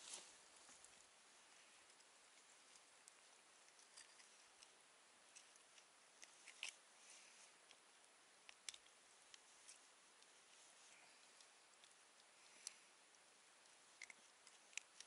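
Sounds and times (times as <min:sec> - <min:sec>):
faint sharp clicks and crackles: 0:00.0 - 0:15.0.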